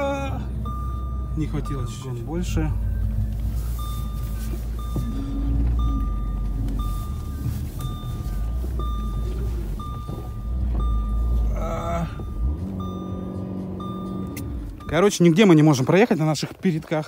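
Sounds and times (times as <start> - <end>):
car engine running: 0.0 - 17.0
parking sensor beeping: 0.0 - 17.0.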